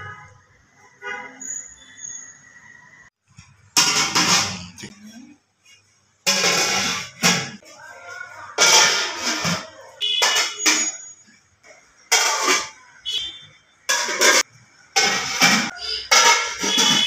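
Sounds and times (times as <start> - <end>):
pot lids clattering on pots: 8.6 - 11.1, 12.0 - 12.8, 13.9 - 17.0.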